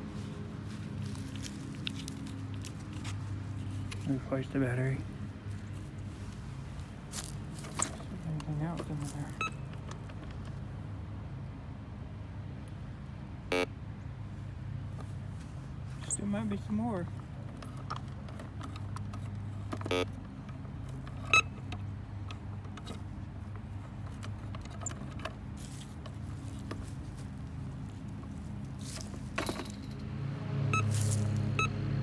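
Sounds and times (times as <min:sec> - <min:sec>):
metal detector humming tone: 0:13.5 - 0:13.8, 0:19.8 - 0:20.2.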